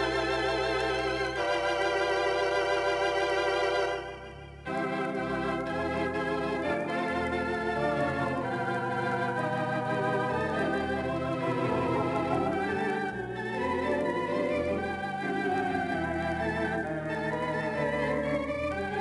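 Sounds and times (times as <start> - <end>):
theatre organ playing: 0.0 - 19.0.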